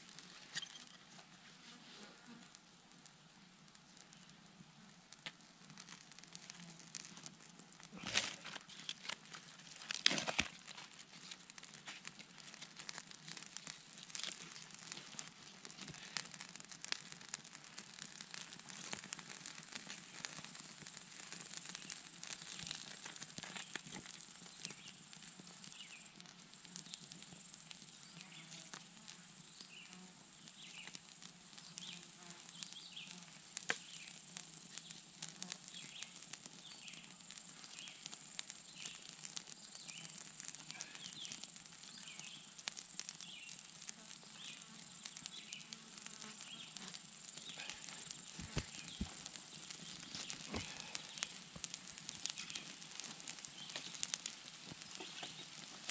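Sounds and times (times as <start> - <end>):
campfire crackling: 0.0 - 55.9
insect chirps: 0.5 - 1.0, 15.8 - 55.9
low buzz of flies: 1.4 - 2.7, 23.6 - 39.0, 39.7 - 55.9
insects trilling: 15.7 - 55.9.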